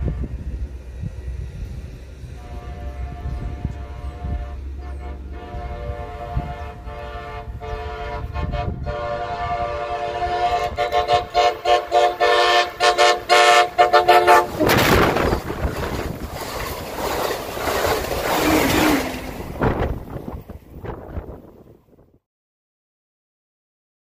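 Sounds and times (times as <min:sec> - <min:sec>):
train horn blasts: 0:00.0 - 0:00.5, 0:02.3 - 0:15.4
train rushing past: 0:00.0 - 0:21.7.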